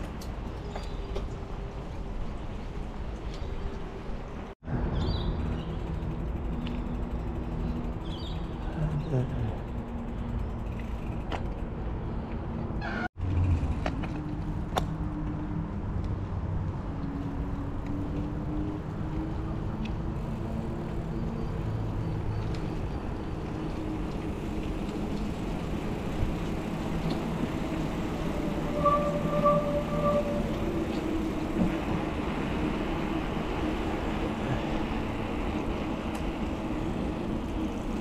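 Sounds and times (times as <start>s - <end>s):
wind rumble: 9.4s - 38.0s
bike tyres on wet pavement: 10.1s - 38.0s.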